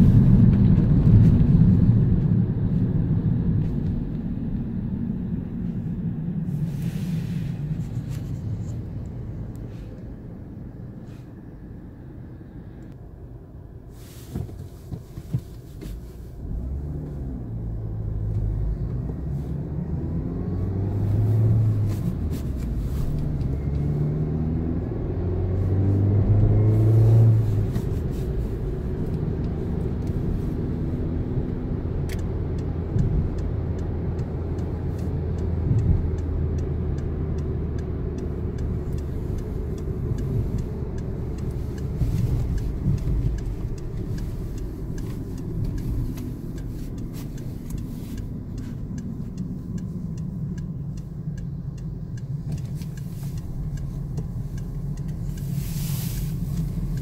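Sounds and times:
road noise: 0:00.0 - 0:57.0
car engine accelerating: 0:14.2 - 0:57.0
light regular ticking: 0:27.4 - 0:57.0.

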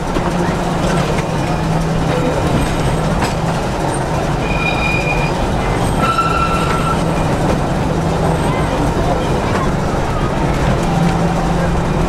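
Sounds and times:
tramcar rumble and motor hum: 0:00.0 - 0:12.0
high wheel squeals: 0:04.4 - 0:07.3.

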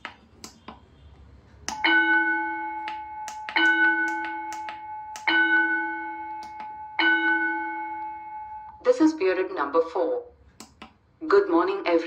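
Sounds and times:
electronic school bell: 0:01.7 - 0:08.9
keypad button clicks: 0:02.8 - 0:05.3.

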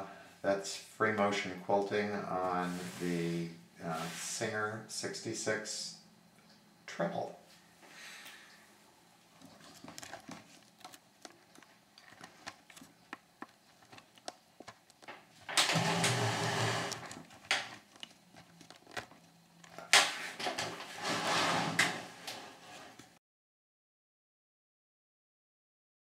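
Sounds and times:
treadle sewing machine stitching: 0:15.6 - 0:17.2.

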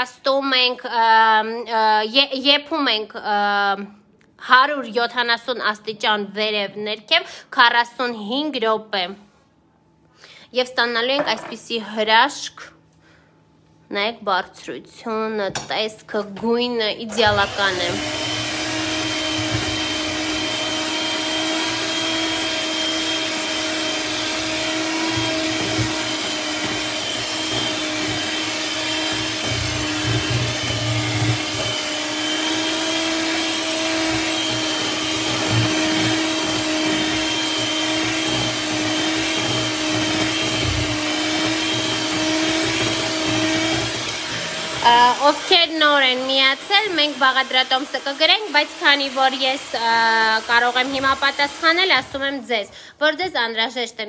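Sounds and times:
stand mixer motor hum: 0:17.3 - 0:45.4.

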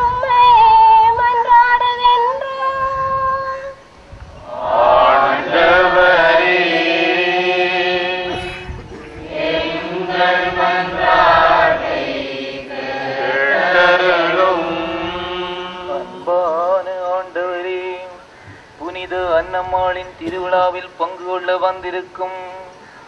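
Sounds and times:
voices chanting a slow refrain: 0:03.5 - 0:18.4.

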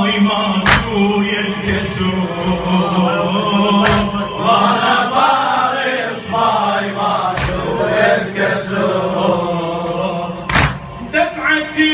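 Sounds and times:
man chanting into microphone: 0:00.0 - 0:04.7, 0:09.5 - 0:11.9
voices chanting along: 0:00.0 - 0:11.7
sharp rhythmic strikes: 0:03.6 - 0:05.0, 0:07.2 - 0:08.1, 0:10.4 - 0:11.1.

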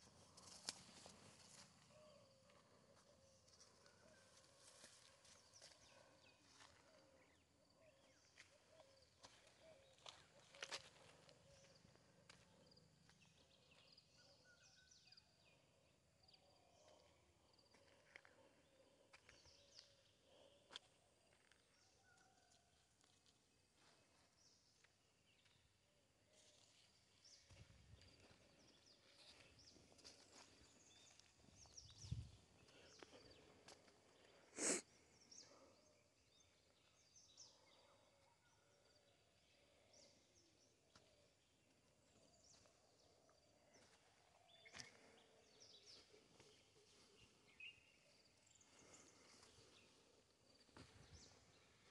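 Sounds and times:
faint bird chirps and trills: 0:00.0 - 0:22.7.

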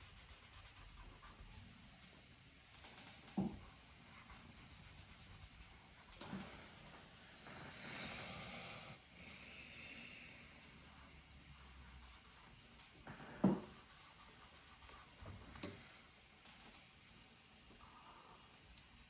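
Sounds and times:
marker scratching on paper: 0:00.0 - 0:01.7, 0:03.6 - 0:05.8, 0:10.9 - 0:15.3.

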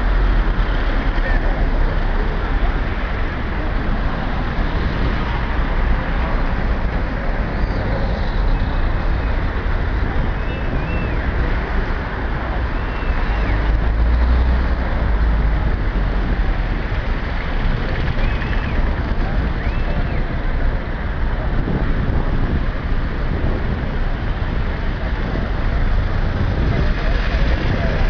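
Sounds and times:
crowd talking indistinctly: 0:00.0 - 0:28.0.

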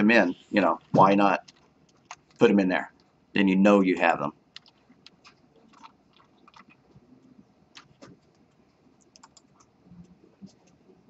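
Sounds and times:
keyboard and mouse clicks: 0:00.9 - 0:03.1, 0:04.5 - 0:10.9.

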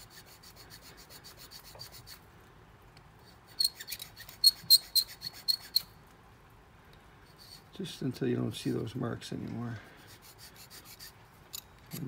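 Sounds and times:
hand file stroking metal: 0:00.0 - 0:02.2, 0:03.2 - 0:05.9, 0:07.3 - 0:07.7, 0:09.8 - 0:12.0.

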